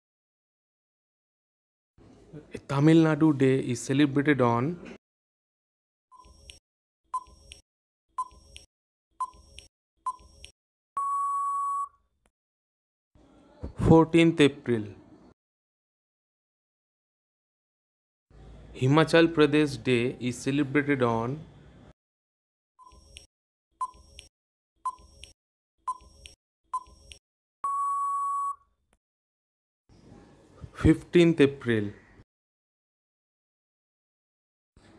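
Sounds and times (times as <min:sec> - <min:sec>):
long steady beep: 0:11.0 - 0:12.0, 0:27.6 - 0:28.6
short beeps: 0:11.0 - 0:12.0, 0:27.6 - 0:28.6.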